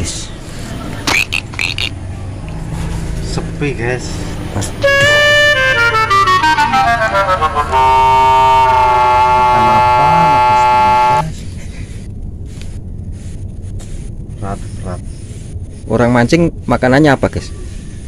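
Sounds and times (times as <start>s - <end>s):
comic brassy horn tone: 4.8s - 11.2s.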